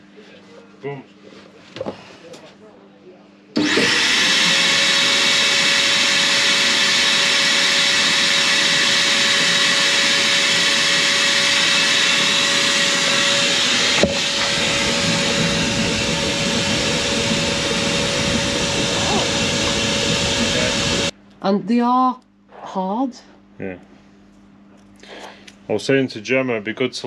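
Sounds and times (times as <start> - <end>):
vacuum cleaner sucking air: 3.6 - 21.1.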